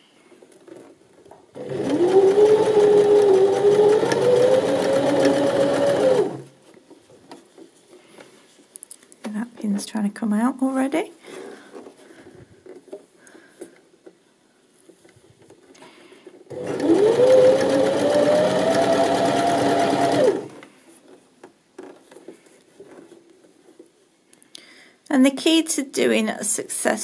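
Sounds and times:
electric sewing machine stitching: 1.5s - 6.5s, 16.5s - 20.6s.

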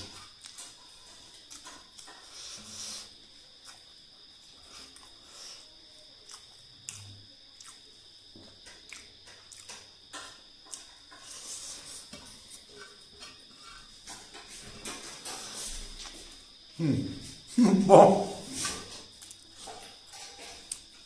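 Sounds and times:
wet chewing and lip smacks: 3.6s - 4.1s, 6.2s - 8.1s, 8.7s - 9.9s.

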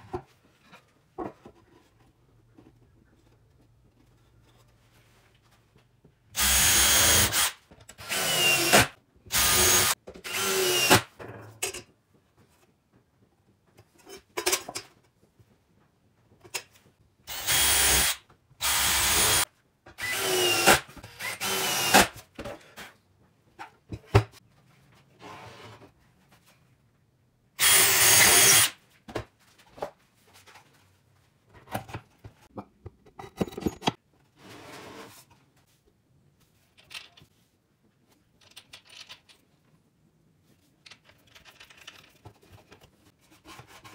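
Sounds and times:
drill boring into wood: 6.4s - 11.0s, 17.3s - 19.4s, 20.0s - 22.1s, 27.6s - 28.7s.

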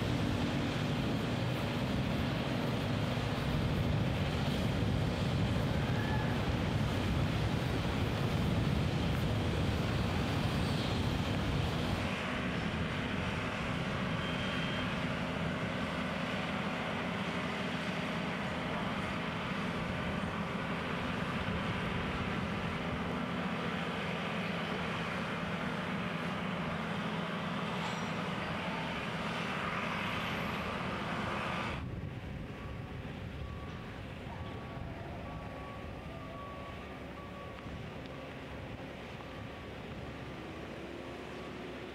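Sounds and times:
wind rumbling on microphone: 0.0s - 14.2s, 31.7s - 40.8s
low machinery engine hum: 0.0s - 41.9s.

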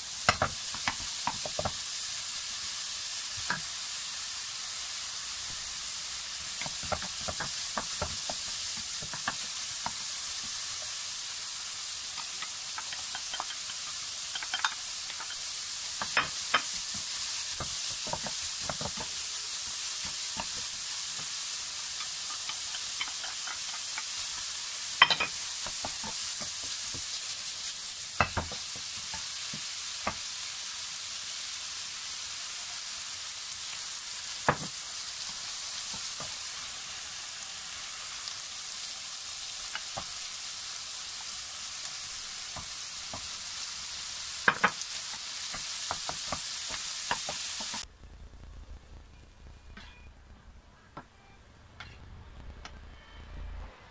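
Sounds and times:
food sizzling in a wok: 0.0s - 47.9s.

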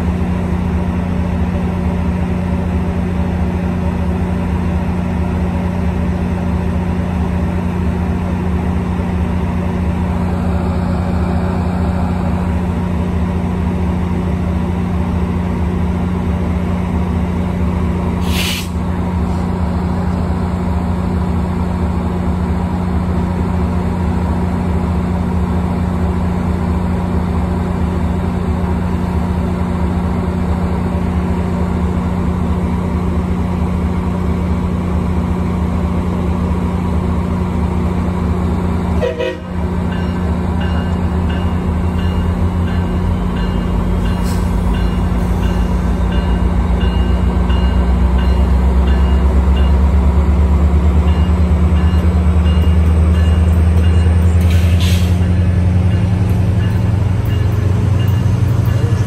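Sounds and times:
diesel locomotive idling: 0.0s - 59.0s
air hiss: 18.2s - 18.8s.

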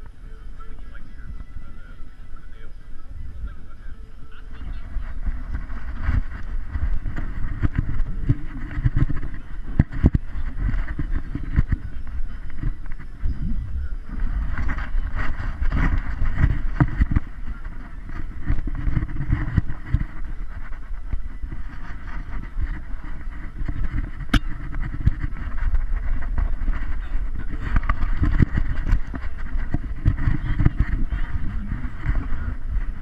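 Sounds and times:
wind buffeting microphone: 0.0s - 33.0s
camera mount knocking and rubbing: 21.6s - 32.4s.

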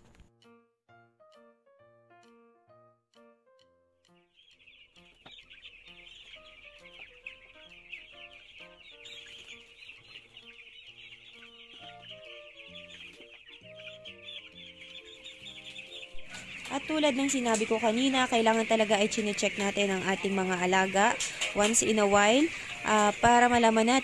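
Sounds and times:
soft piano background music: 0.0s - 24.0s
chicks peeping: 4.2s - 24.0s.

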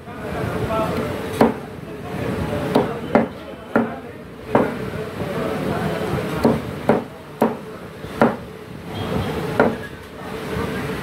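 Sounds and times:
knife chopping on wooden block: 1.4s - 1.6s, 6.4s - 7.6s, 8.2s - 8.4s, 9.6s - 9.8s.

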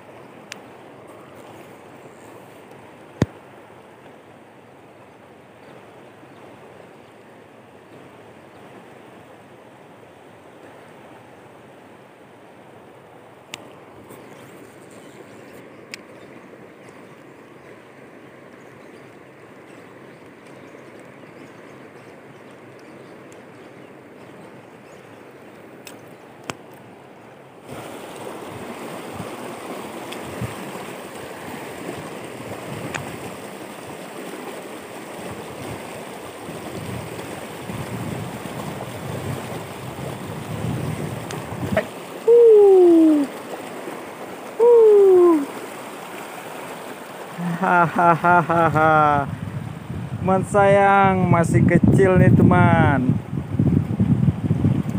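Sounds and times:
faint clicks: 13.5s - 13.8s, 15.9s - 16.2s
river rapids rushing: 27.5s - 49.3s
falling hoot-like tones: 41.8s - 43.4s, 44.6s - 45.5s.

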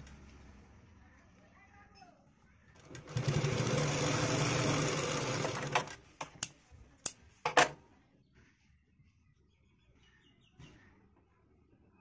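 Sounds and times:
sewing machine stitching: 2.8s - 6.0s.

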